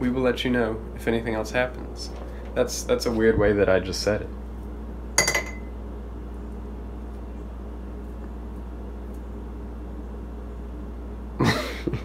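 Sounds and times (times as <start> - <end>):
low room hum: 0.0 - 12.0
kitchenware clinking: 5.2 - 5.7.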